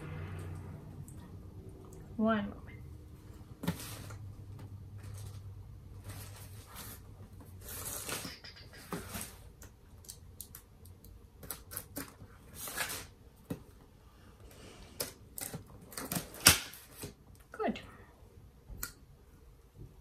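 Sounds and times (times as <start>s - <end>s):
packaging rustling and scraping: 3.5s - 9.6s, 11.5s - 13.2s.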